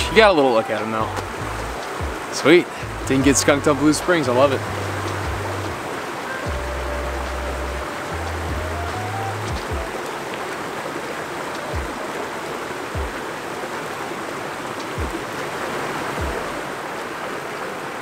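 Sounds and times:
creek water rushing: 0.0 - 18.0
soft low thumps: 1.0 - 5.8, 6.5 - 10.0, 11.7 - 12.0, 12.9 - 13.2, 14.9 - 15.2, 16.2 - 16.6.

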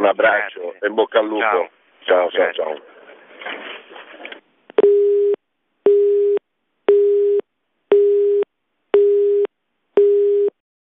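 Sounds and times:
telephone busy tone beeping: 4.8 - 8.4, 9.0 - 10.6.

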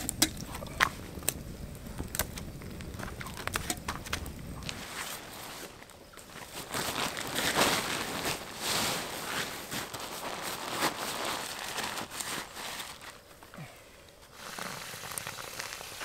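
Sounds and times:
tent fabric rustling and crumpling: 3.0 - 13.7, 14.3 - 16.0.

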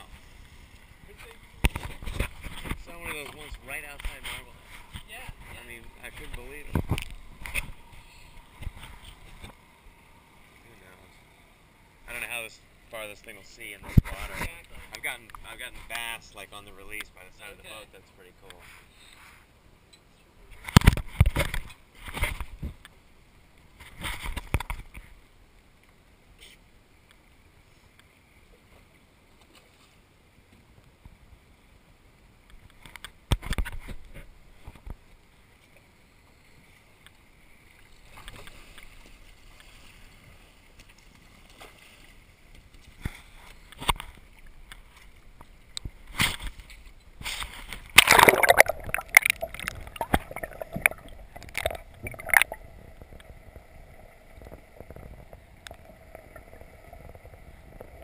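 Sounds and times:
sea water sloshing and splashing: 36.7 - 58.0.

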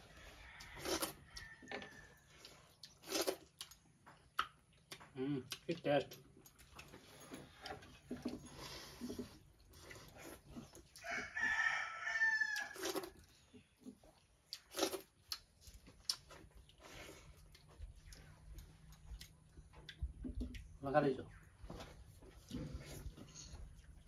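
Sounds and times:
rooster crowing: 0.0 - 2.2, 11.0 - 13.0.

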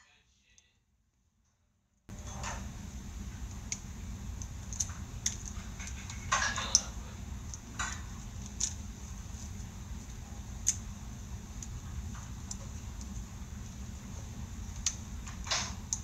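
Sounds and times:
steady low hum: 2.1 - 16.0.

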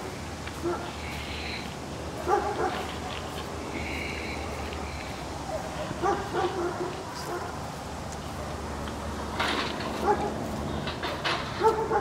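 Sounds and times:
dog barking: 0.6 - 0.9, 2.2 - 2.9, 5.5 - 7.6, 10.0 - 10.4, 11.6 - 12.0.

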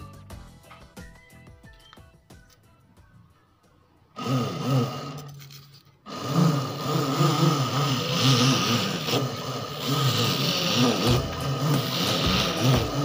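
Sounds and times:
small electric motor humming: 4.2 - 13.0
tube cutting foam hiss: 4.2 - 13.0.

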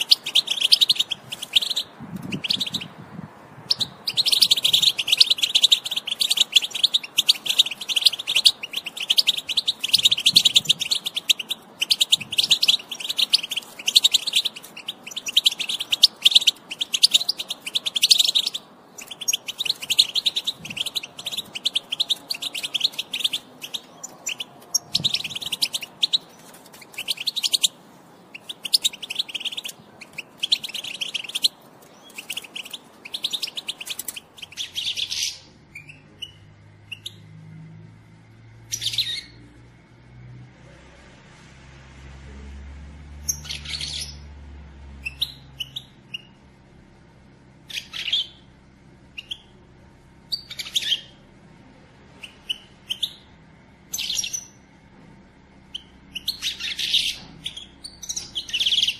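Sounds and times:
goldfinch twittering in high chirps: 0.0 - 2.9, 3.6 - 27.7, 28.3 - 37.2, 47.7 - 48.4, 49.2 - 49.5, 50.3 - 51.2, 53.9 - 54.6, 55.7 - 58.9.

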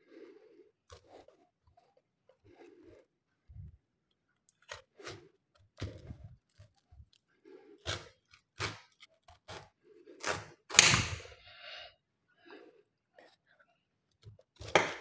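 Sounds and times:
fruit rind cracking and tearing: 4.1 - 11.4, 14.1 - 15.0.

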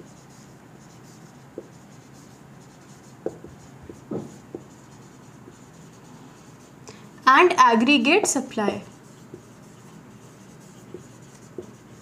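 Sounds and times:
marker squeaking on whiteboard: 0.0 - 6.8, 8.9 - 12.0.

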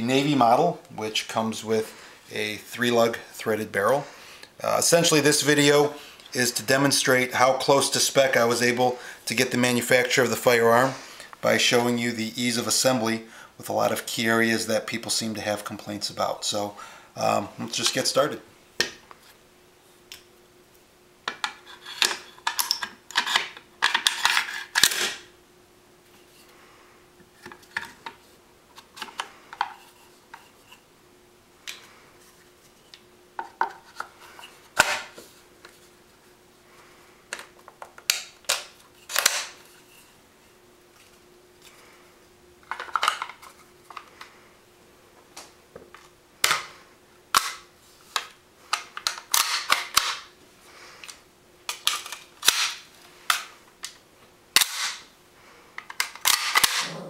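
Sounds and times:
gun parts clicking and clacking: 48.7 - 50.2, 55.8 - 56.9.

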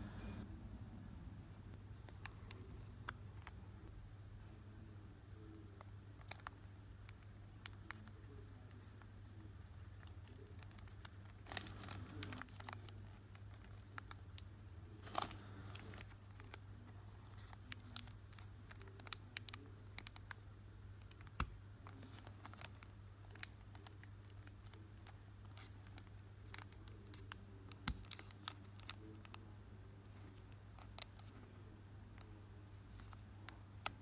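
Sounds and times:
fingers picking at packet: 21.0 - 29.4.

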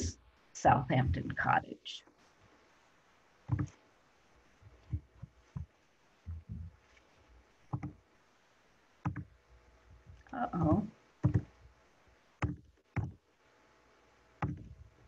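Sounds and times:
dull thumps and taps: 3.5 - 3.8, 4.7 - 7.0, 7.6 - 8.0, 9.0 - 9.3, 11.2 - 11.6, 12.4 - 13.2, 14.4 - 15.0.

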